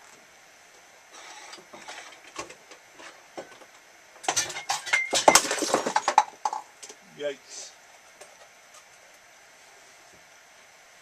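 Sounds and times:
tools clattering and knocking: 0:01.2 - 0:06.6.

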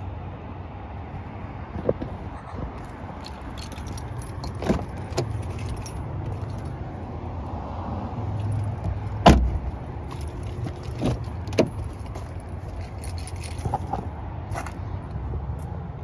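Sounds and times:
car door handle and latch clicks: 0:04.5 - 0:05.7, 0:08.8 - 0:09.6, 0:10.6 - 0:11.8
car door closing thud: 0:09.2 - 0:09.6.

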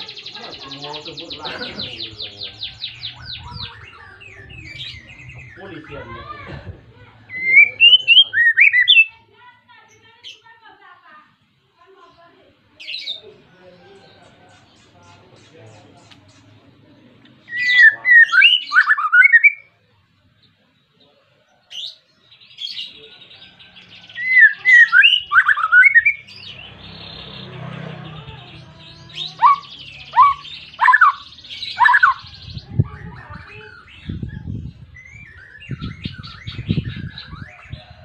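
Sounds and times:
songbird singing whistles and rattles: 0:07.4 - 0:09.1, 0:17.5 - 0:19.7, 0:24.1 - 0:26.4, 0:29.3 - 0:37.8.

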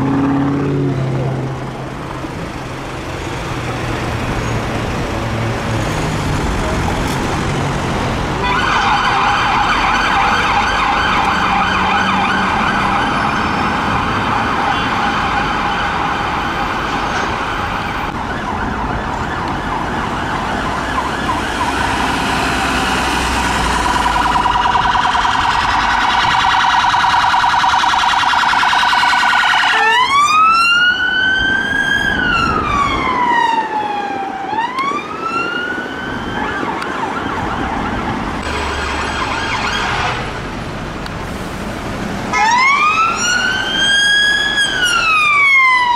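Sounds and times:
police siren: 0:08.2 - 0:40.4, 0:42.3 - 0:45.9.

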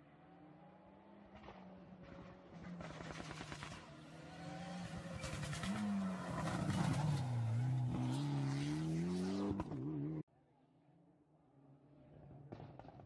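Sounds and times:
rally car engine passing: 0:00.1 - 0:10.2.

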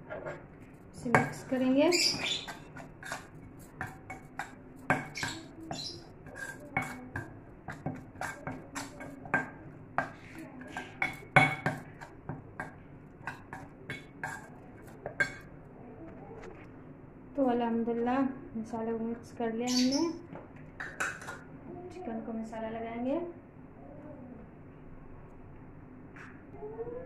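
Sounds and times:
spoon stirring in metal bowl: 0:00.0 - 0:15.6, 0:20.7 - 0:21.6.

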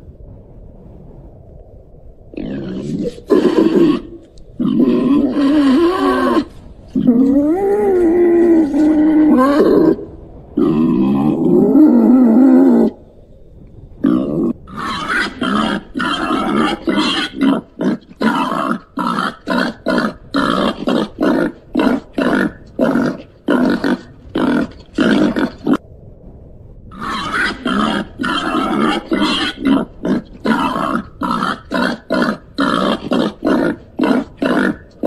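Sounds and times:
animal giving short calls: 0:27.0 - 0:35.0.

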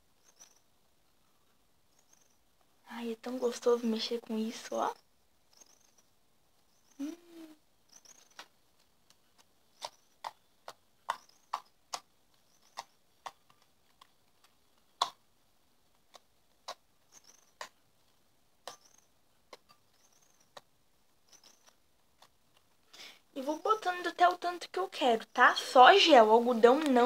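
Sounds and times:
wet clicks of kneaded slime: 0:08.1 - 0:15.2.

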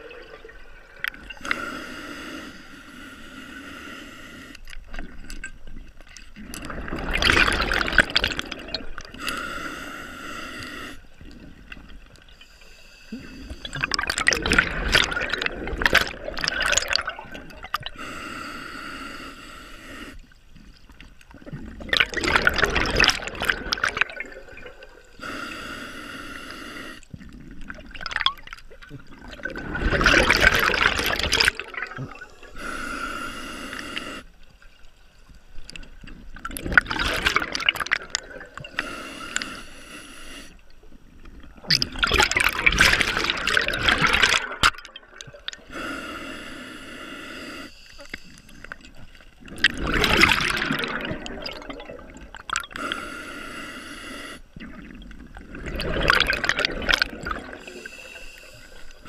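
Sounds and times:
hissing regulator inhale: 0:01.4 - 0:04.6, 0:09.2 - 0:11.1, 0:12.4 - 0:13.7, 0:18.0 - 0:20.4, 0:25.0 - 0:27.1, 0:32.4 - 0:34.4, 0:38.7 - 0:40.7, 0:45.6 - 0:49.2, 0:52.8 - 0:54.6, 0:57.5 - 0:59.0.

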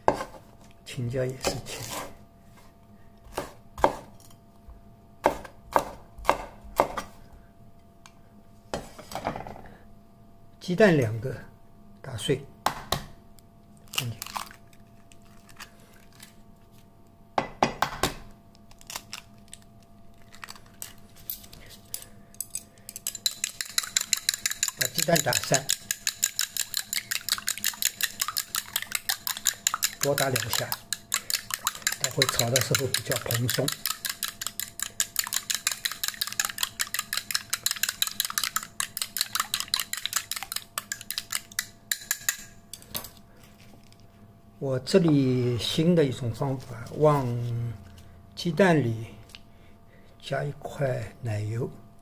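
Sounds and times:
eggs cracking on a bowl: 0:13.8 - 0:15.7, 0:18.6 - 0:42.9.

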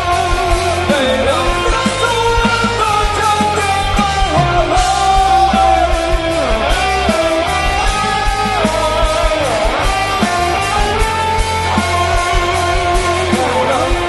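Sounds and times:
rock band playing live: 0:00.0 - 0:14.0
sliding lead guitar melody: 0:00.0 - 0:14.0.

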